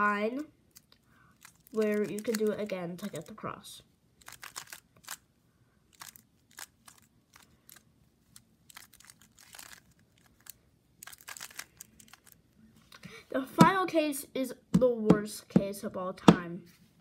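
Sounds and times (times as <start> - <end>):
puzzle cube layers clicking: 0.7 - 3.4.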